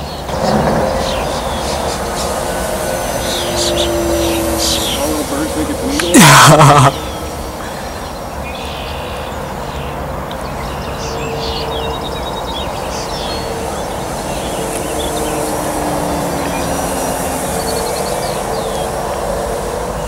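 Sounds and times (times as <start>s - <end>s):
birds chirping: 0.0s - 19.1s
model plane propeller droning: 0.0s - 20.0s.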